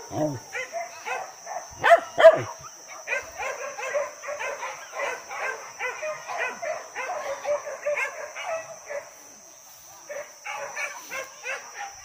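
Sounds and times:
dog pack yelping: 0:00.0 - 0:09.1
dogs barking: 0:00.0 - 0:09.2, 0:10.0 - 0:12.0.

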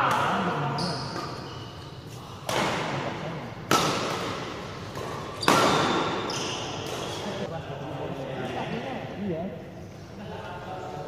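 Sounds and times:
badminton racket hitting shuttlecock: 0:03.6 - 0:07.3.

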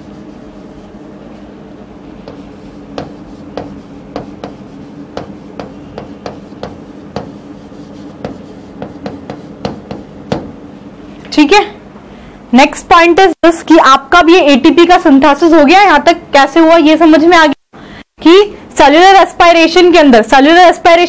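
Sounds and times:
chalk tapping and scraping: 0:00.0 - 0:01.5, 0:02.2 - 0:10.5
steady low hum: 0:00.0 - 0:13.8.

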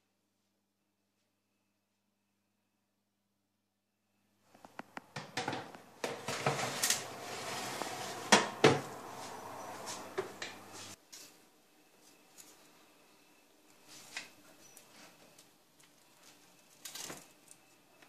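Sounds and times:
metal baking tray clattering and scraping: 0:05.2 - 0:11.0.

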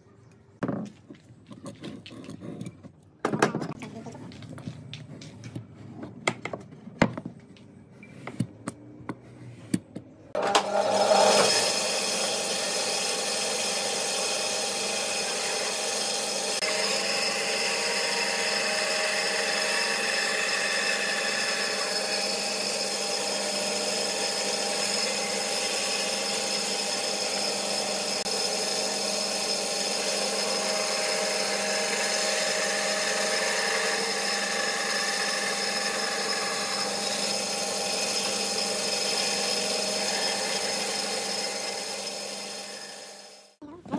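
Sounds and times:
bandsaw cutting wood: 0:10.4 - 0:43.6.

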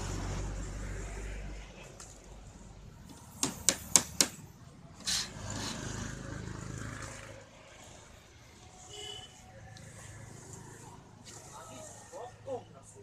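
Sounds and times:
faint road traffic: 0:00.0 - 0:13.0
short rasp: 0:05.0 - 0:05.9.

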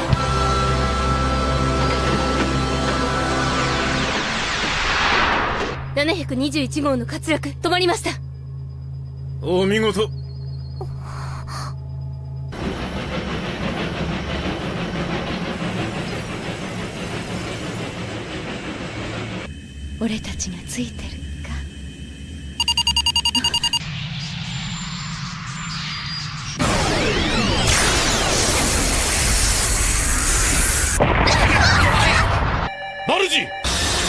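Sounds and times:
steady low hum: 0:05.9 - 0:13.1
dense steady rumble: 0:14.8 - 0:22.7.

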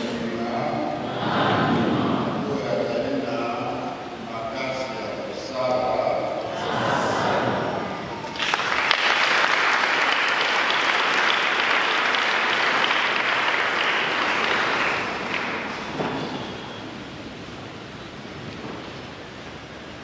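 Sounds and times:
congregation applauding: 0:08.1 - 0:16.9.

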